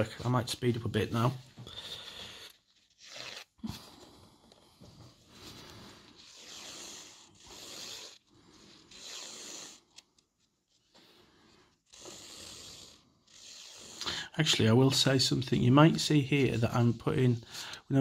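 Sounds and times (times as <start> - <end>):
pencil scratching on paper: 5.4 - 17.6.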